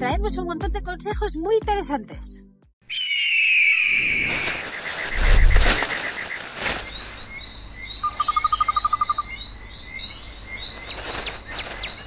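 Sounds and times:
birds chirping: 2.8s - 12.0s
rapid bird trill: 2.8s - 12.0s.

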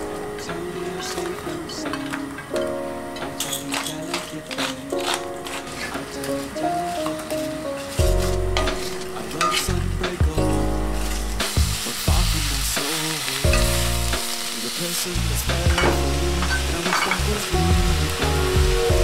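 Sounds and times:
onions sizzling in oil: 6.4s - 19.0s.

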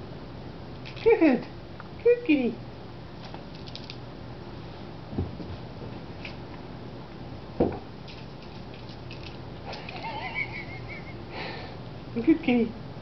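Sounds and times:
indoor room hum: 0.0s - 13.0s
soft thumps: 5.1s - 5.6s.

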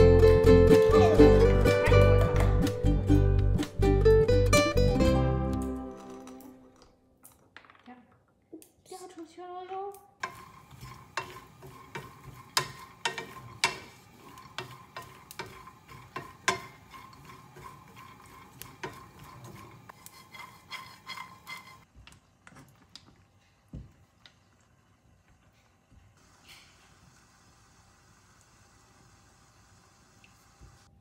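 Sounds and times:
spatula stirring nuts in a pan: 10.2s - 23.0s.

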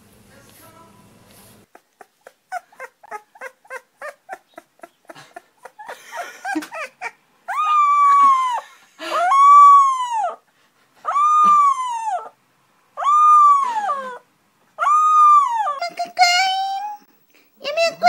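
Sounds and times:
puppy whimpering yips: 1.7s - 4.9s, 5.7s - 8.6s, 11.0s - 12.4s, 13.0s - 14.2s, 14.8s - 15.9s
puppy howling: 6.7s - 10.4s, 11.0s - 12.4s, 13.0s - 14.2s, 14.8s - 15.8s.

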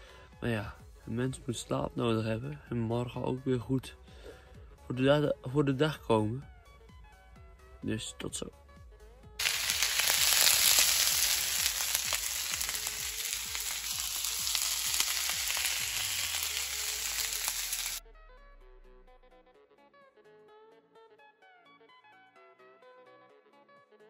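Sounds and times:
food sizzling in a pan: 9.4s - 18.0s.

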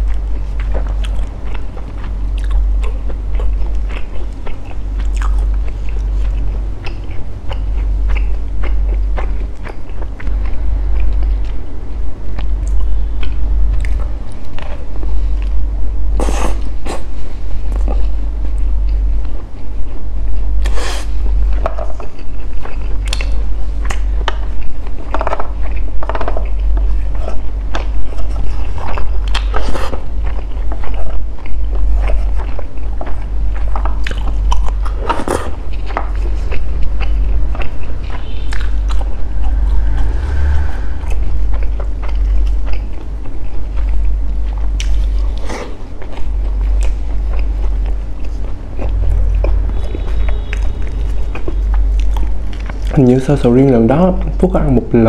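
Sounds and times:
mouth chewing clicks and smacks: 0.0s - 11.6s, 21.5s - 39.1s
steady low hum: 0.0s - 55.0s.

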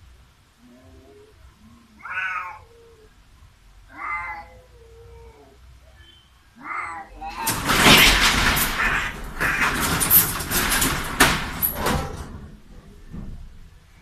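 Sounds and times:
cats yowling: 0.6s - 10.2s
cats moaning: 0.6s - 13.0s.

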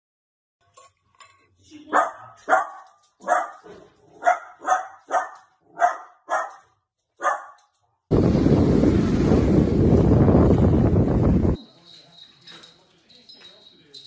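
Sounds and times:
dog barking: 1.9s - 7.7s
wind on microphone: 8.1s - 11.6s.

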